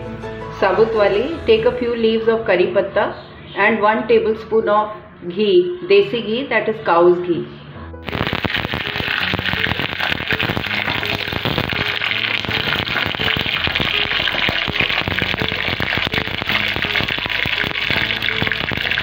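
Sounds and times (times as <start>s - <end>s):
oil sizzling and crackling: 8.0s - 19.0s.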